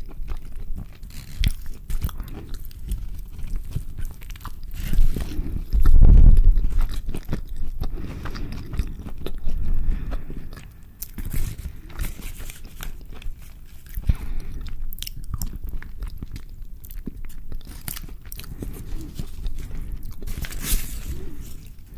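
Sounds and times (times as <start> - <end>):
chewing and biting food: 0.0 - 21.9
paper wrapper crinkling: 0.4 - 7.6, 11.0 - 14.4, 17.6 - 21.9.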